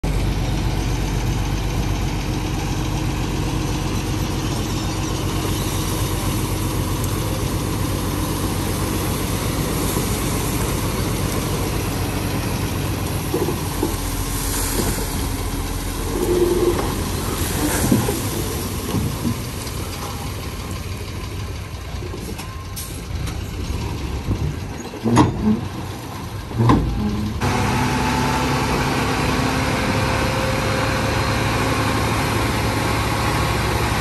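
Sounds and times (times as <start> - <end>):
diesel truck engine running: 0.0 - 34.0
soil sliding out: 5.0 - 20.2.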